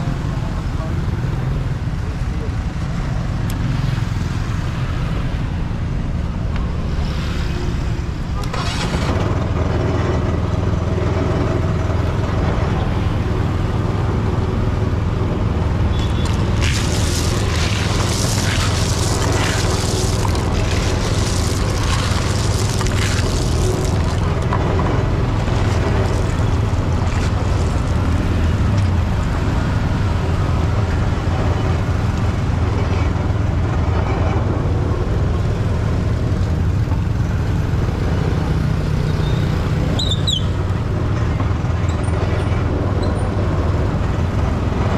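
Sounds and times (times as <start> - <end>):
engine rumble: 0.0 - 44.9
hissing noise: 16.1 - 28.6.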